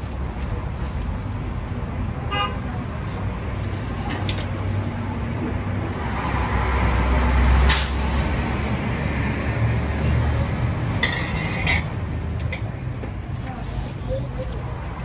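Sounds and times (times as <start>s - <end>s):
traffic engine rumble: 0.0s - 15.0s
short sharp hiss: 7.7s - 8.1s.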